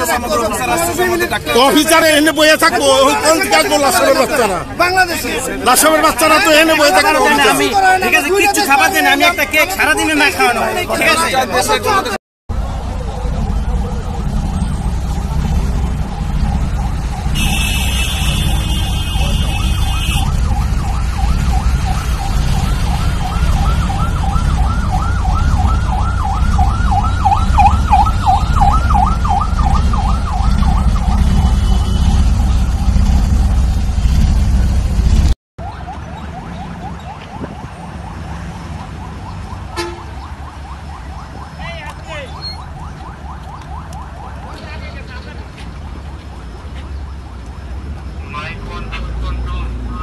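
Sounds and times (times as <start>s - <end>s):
traffic rumble: 0.0s - 50.0s
police siren yelping: 5.7s - 33.0s, 35.6s - 45.0s.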